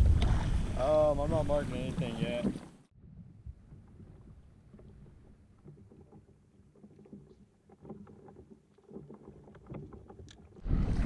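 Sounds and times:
water lapping against hull: 0.0 - 11.0
small knocks: 3.7 - 10.6.

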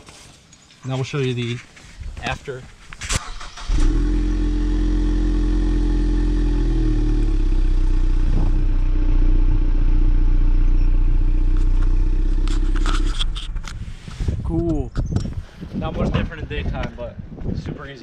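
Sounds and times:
car engine idling: 3.2 - 13.9.

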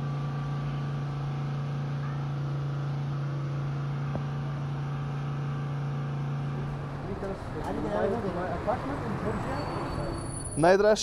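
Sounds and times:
low machine hum: 0.0 - 10.3.

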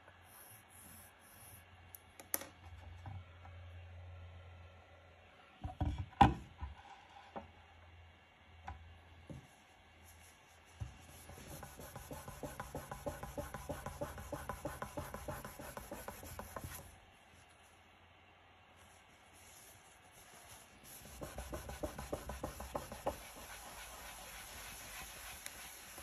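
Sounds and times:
cloth rubbing on wood: 10.0 - 17.6, 18.8 - 26.0.

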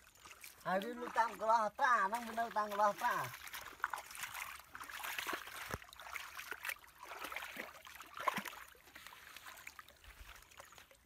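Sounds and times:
hands sloshing through muddy water: 0.0 - 11.0
small splashes and trickling: 0.0 - 11.0.

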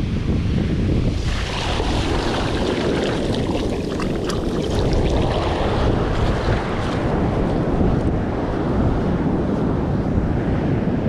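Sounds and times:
wind rumble on microphone: 0.0 - 11.0
waves swirling around feet: 1.1 - 8.0
foam fizzing: 1.2 - 6.5.

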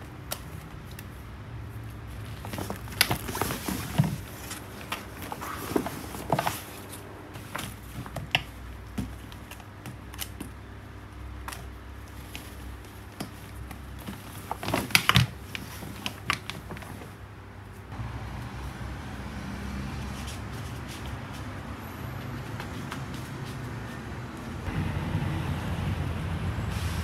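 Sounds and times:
fabric backpack rustling: 1.8 - 8.4.

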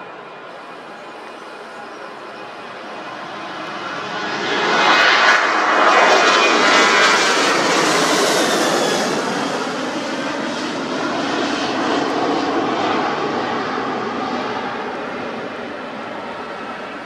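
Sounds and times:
faint high whine: 0.0 - 4.6
jet engine roar: 0.0 - 17.0.

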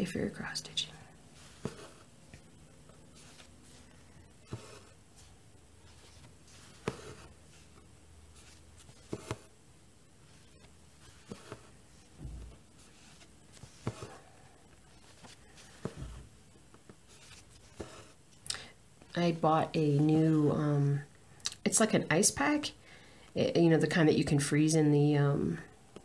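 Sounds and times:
needle and thread through fabric: 0.8 - 18.3.

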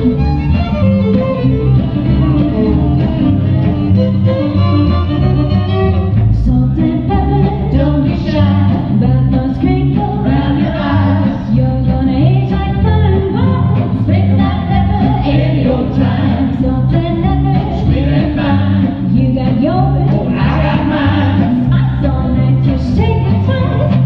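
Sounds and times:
accordion: 0.0 - 24.0
acoustic guitars: 0.0 - 24.0
fiddle: 0.0 - 24.0
upright bass: 0.0 - 24.0
person singing: 14.4 - 24.0.

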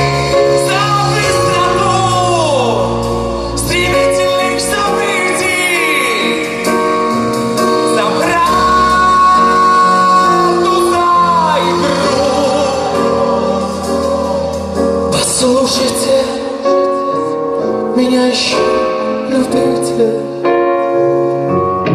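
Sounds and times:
live band playing slow song: 0.0 - 21.9
man singing high notes: 7.8 - 16.6.

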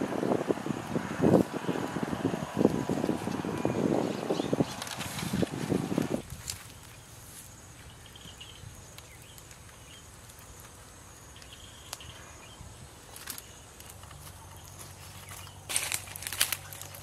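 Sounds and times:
stick clicking and rustling in embers: 4.7 - 7.0, 8.9 - 12.1, 13.0 - 17.0.

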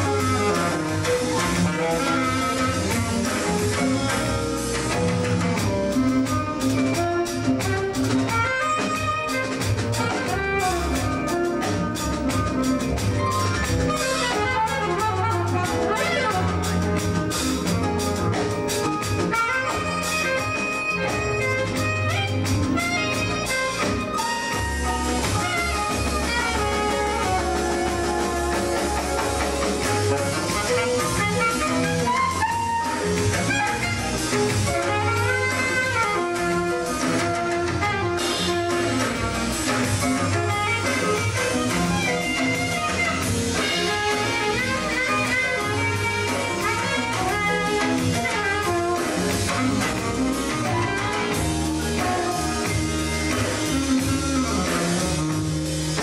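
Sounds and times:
drum strikes: 0.0 - 56.0
jazz band playing: 0.0 - 56.0
saxophone lead: 0.0 - 56.0.

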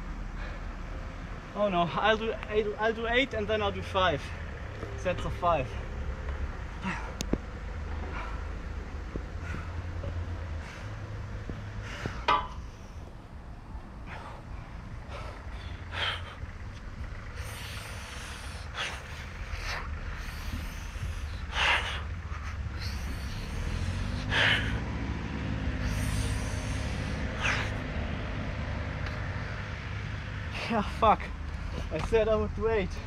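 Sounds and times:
low steady rumble: 0.0 - 33.0
man exhaling forcefully: 22.7 - 25.0, 25.7 - 27.9.

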